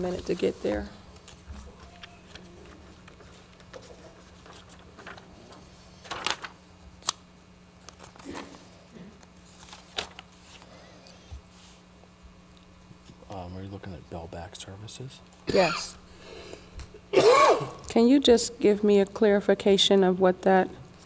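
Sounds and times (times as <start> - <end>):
low electrical hum: 0.0 - 21.0
paper rustling: 1.2 - 7.2, 7.8 - 8.6, 9.4 - 10.7.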